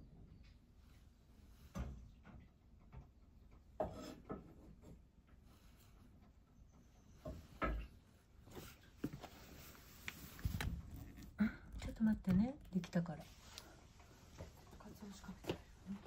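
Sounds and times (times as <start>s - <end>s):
objects knocking and clunking: 1.6s - 9.3s.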